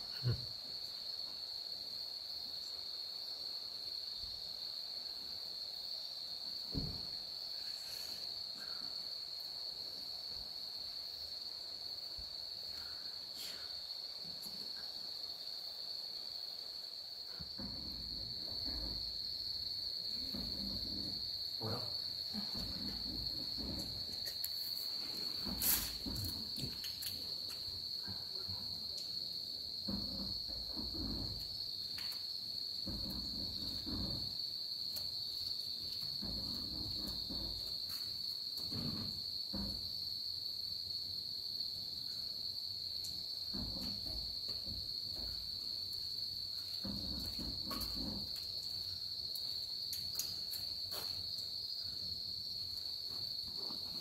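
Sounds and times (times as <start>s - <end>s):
high-pitched insect trill: 0.0s - 54.0s.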